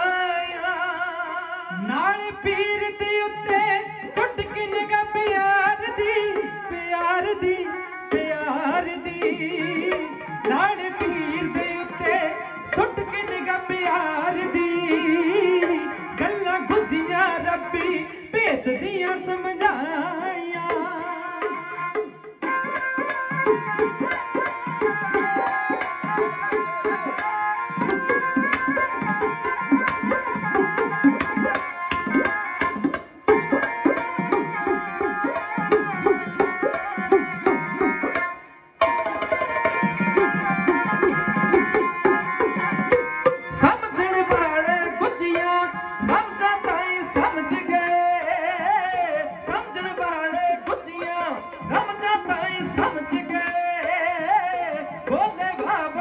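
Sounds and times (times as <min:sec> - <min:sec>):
hand drums in quick rhythm: 0:20.6 - 0:56.0.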